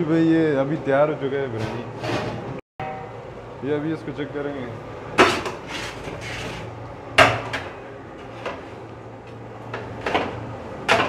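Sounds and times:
metal ladle scraping and clanking pot: 0:05.2 - 0:06.7.

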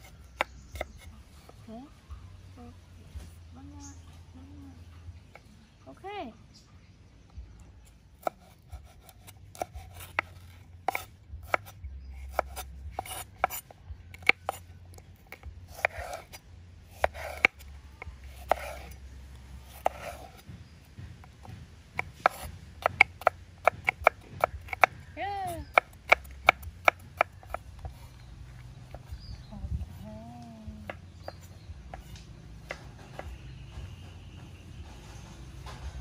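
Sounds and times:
knife slicing scrapes: 0:08.2 - 0:19.0, 0:19.6 - 0:20.5, 0:22.0 - 0:24.9
knife tapping on cutting board: 0:22.2 - 0:24.9.

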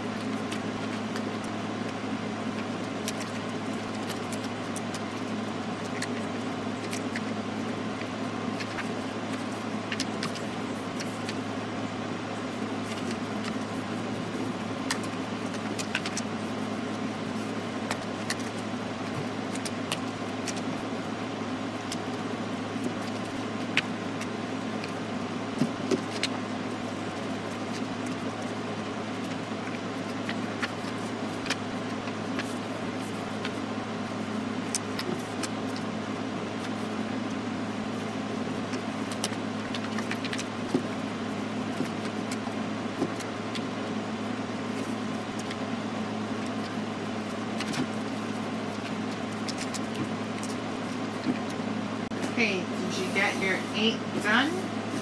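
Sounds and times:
paper being folded by hand: 0:00.0 - 0:55.0
steady low hum: 0:00.0 - 0:55.0.

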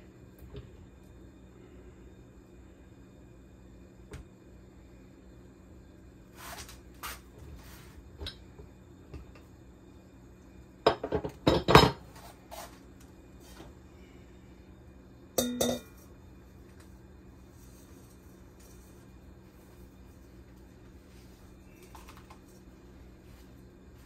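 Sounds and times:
steel bowl clinking and ringing: 0:15.4 - 0:16.1.

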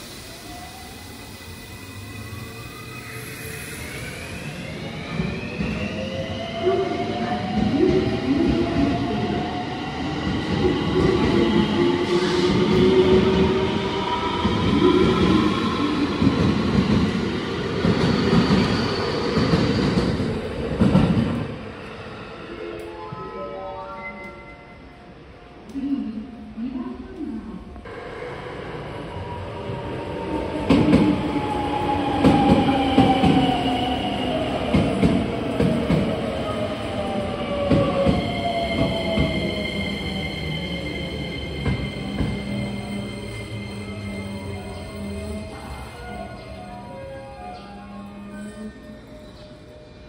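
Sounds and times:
electric train whine: 0:00.0 - 0:25.8.

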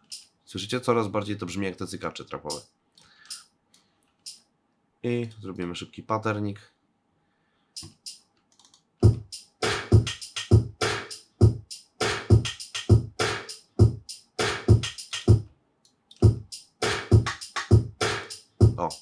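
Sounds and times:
trap drum loop: 0:09.0 - 0:15.5, 0:16.1 - 0:19.0.

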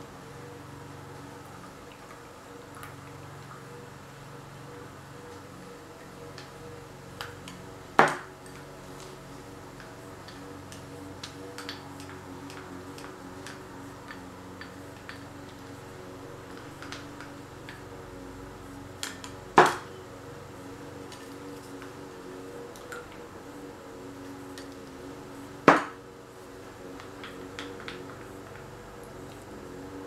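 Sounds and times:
paint cups and sticks clicking: 0:07.2 - 0:15.7, 0:16.5 - 0:17.8, 0:26.9 - 0:28.7.

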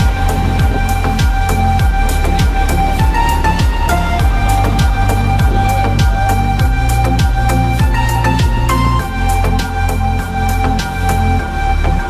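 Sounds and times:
kick drum beat: 0:00.0 - 0:08.7
electronic music: 0:00.0 - 0:12.0.

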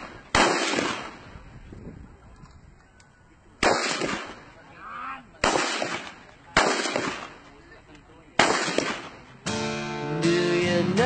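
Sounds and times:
rifle shots with echo: 0:00.0 - 0:01.4, 0:03.6 - 0:04.6, 0:05.4 - 0:07.6, 0:08.4 - 0:09.3.

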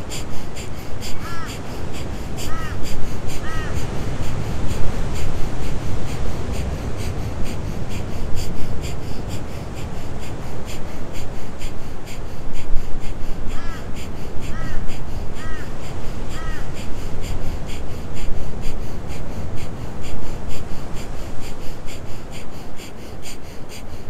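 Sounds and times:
bird calling: 0:00.0 - 0:10.4, 0:12.6 - 0:17.8
fast forceful nasal breathing: 0:00.0 - 0:24.0.

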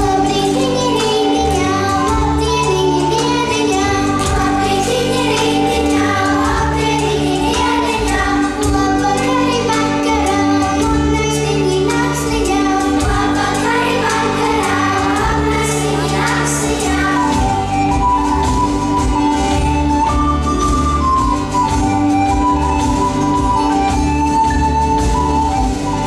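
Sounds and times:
choir singing: 0:03.9 - 0:10.0, 0:11.8 - 0:18.5.

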